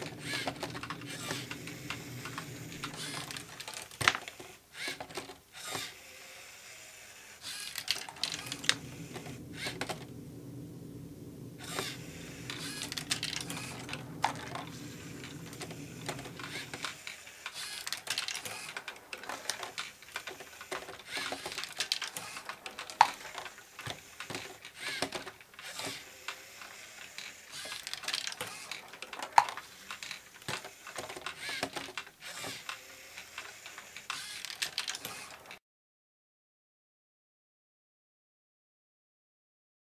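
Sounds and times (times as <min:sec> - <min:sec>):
plastic parts and balls clattering: 0:00.0 - 0:05.9, 0:07.4 - 0:10.8, 0:11.4 - 0:35.6
motor humming: 0:00.0 - 0:27.8.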